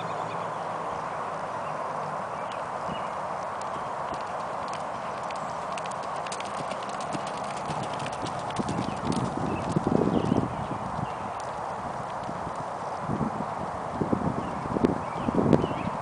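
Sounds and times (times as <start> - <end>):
horse hoofbeats on dirt: 3.6 - 13.0.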